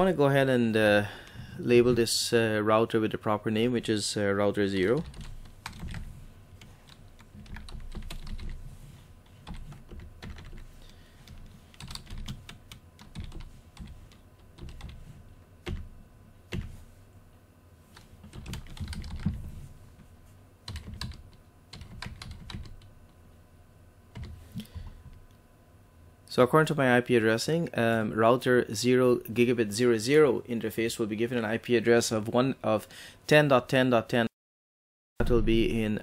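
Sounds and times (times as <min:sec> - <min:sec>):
computer keyboard typing: 0:04.9 - 0:08.6, 0:09.4 - 0:15.9, 0:18.0 - 0:19.4, 0:20.7 - 0:22.9, 0:24.2 - 0:24.8.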